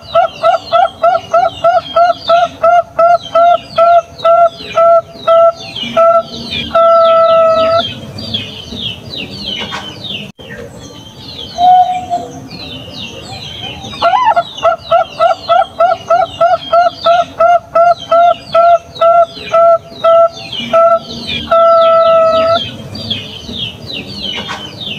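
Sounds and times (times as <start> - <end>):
high twittering bird chirps: 0.0 - 24.9
dove cooing: 11.6 - 22.8.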